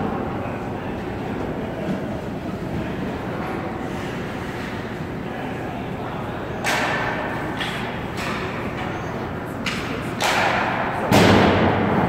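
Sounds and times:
hockey puck bangs and thuds: 9.6s - 12.0s.

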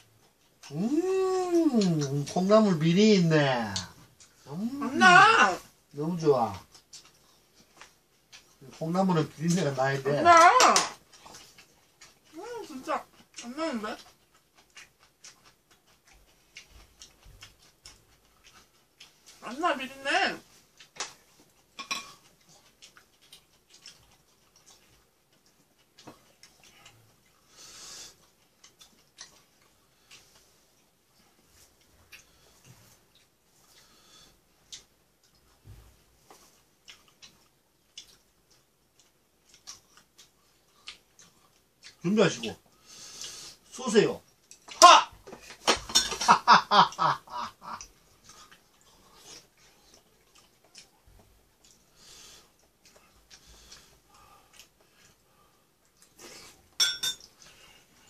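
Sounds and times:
person chewing: 0.0s - 2.8s, 6.5s - 19.4s, 20.4s - 58.0s
woman laughing: 46.2s - 47.8s.

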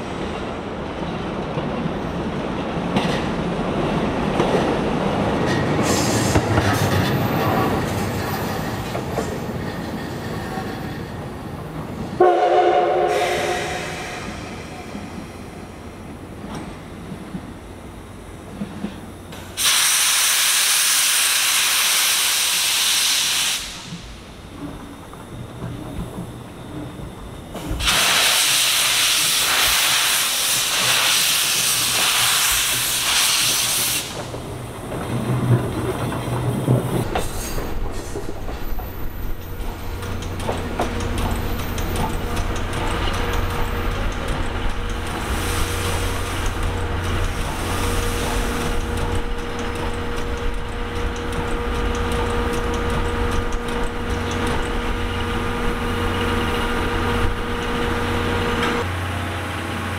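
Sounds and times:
steam locomotive hissing steam: 5.8s - 7.8s, 12.2s - 15.8s, 19.4s - 24.3s, 27.5s - 34.6s, 37.0s - 38.6s, 43.2s - 50.2s.

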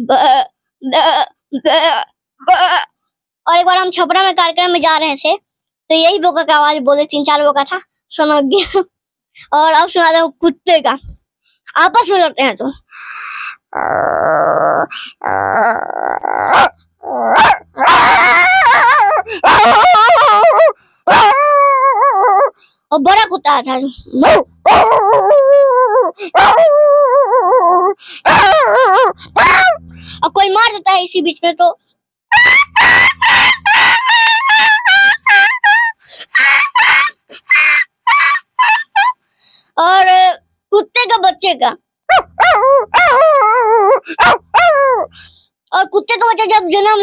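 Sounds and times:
boy imitating dogs fighting: 0.0s - 2.9s, 13.6s - 47.0s.

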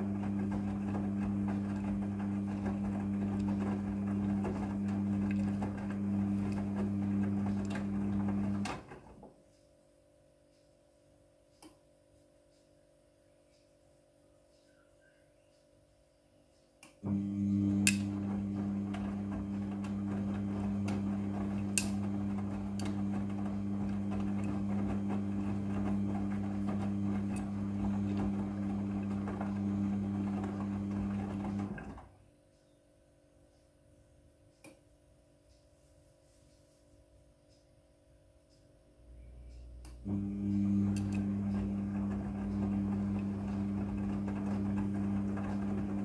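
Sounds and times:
wet laundry tumbling: 0.0s - 9.2s, 17.4s - 32.1s, 40.1s - 46.0s
washing machine motor hum: 0.0s - 9.4s, 17.0s - 32.4s, 39.0s - 46.0s.

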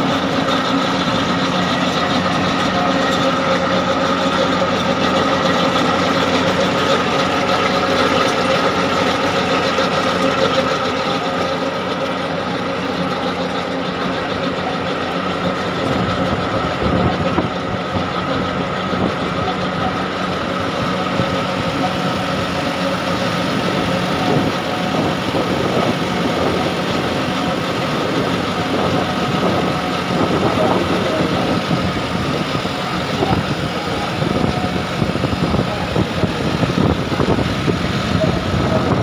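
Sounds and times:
diesel tractor running: 0.0s - 39.0s
trencher cutting soil: 0.0s - 39.0s.

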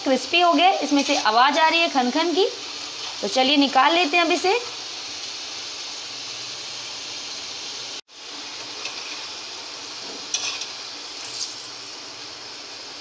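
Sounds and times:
fries sizzling in hot oil: 0.0s - 13.0s.

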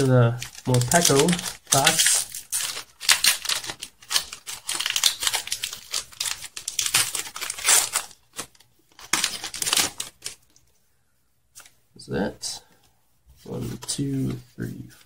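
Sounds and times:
foil wrapper crinkling and tearing: 0.0s - 10.6s.

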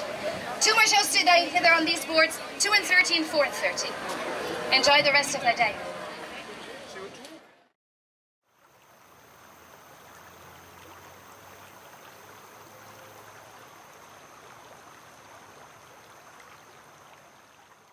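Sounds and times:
stream running over rocks: 8.4s - 17.9s.

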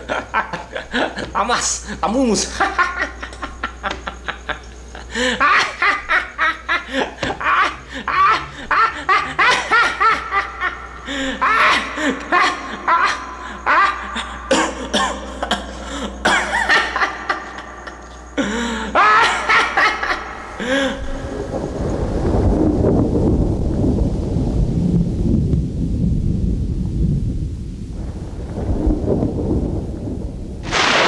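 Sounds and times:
man laughing heartily: 0.0s - 21.4s.

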